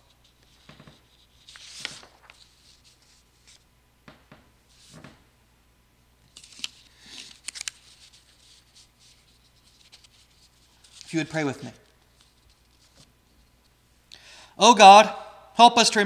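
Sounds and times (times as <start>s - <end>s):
paper rustling: 0.1s - 3.6s, 6.3s - 13.5s.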